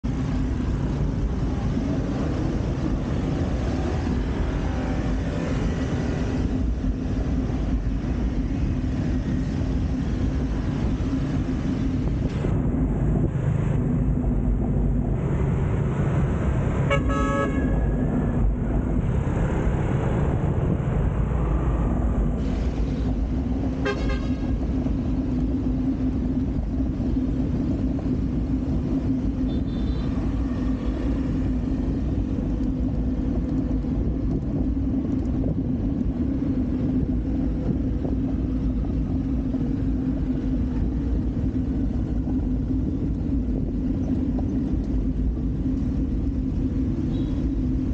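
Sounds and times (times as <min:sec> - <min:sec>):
road traffic rumble: 0:00.0 - 0:47.9
vehicle horn honks: 0:16.9 - 0:17.8, 0:23.8 - 0:24.5, 0:29.5 - 0:30.2, 0:47.1 - 0:47.4.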